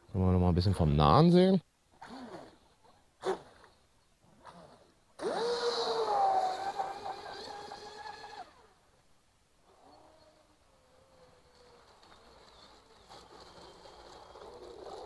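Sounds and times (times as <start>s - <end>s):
model boat motor whining: 4.4s - 8.9s, 9.6s - 15.0s.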